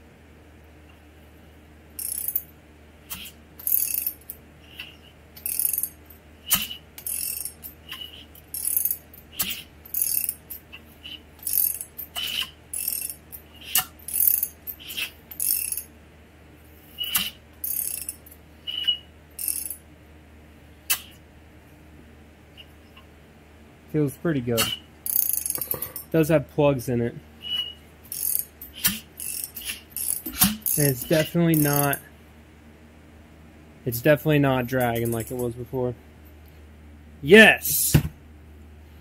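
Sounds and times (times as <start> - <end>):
hand ratchet clicking: 2.0 - 2.4, 3.1 - 4.4, 5.4 - 10.6, 11.4 - 15.9, 17.0 - 18.3, 19.4 - 19.8, 25.1 - 26.0, 28.1 - 32.0.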